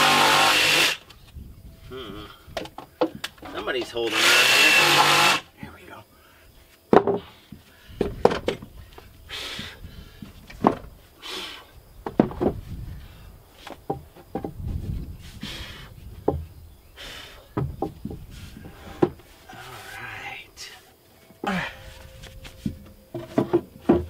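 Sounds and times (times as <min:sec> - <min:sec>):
breathy noises: 0:01.8 - 0:03.0, 0:18.2 - 0:22.9
wooden boards knocking: 0:06.9 - 0:07.3, 0:12.0 - 0:12.6, 0:13.8 - 0:14.7, 0:16.2 - 0:16.5, 0:17.5 - 0:18.2, 0:22.6 - 0:24.0.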